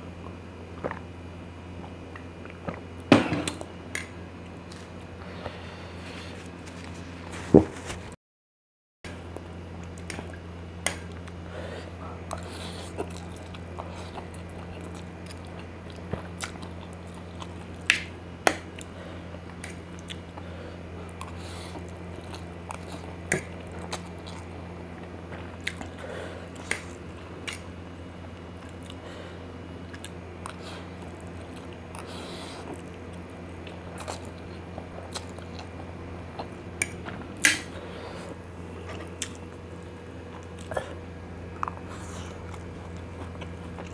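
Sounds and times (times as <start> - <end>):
steady low hum: 0.0 - 8.2, 9.1 - 43.9
chewing noodles: 11.0 - 43.9.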